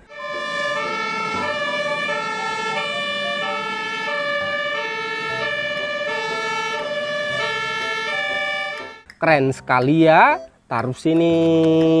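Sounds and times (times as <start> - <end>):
two-tone emergency siren: 0.0 - 9.0.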